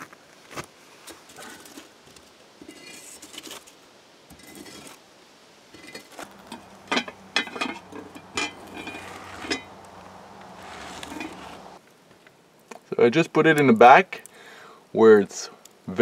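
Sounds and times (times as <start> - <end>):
metal poker scraping embers: 2.6 - 5.0, 5.7 - 11.8
metallic clinks of pot: 5.8 - 9.7.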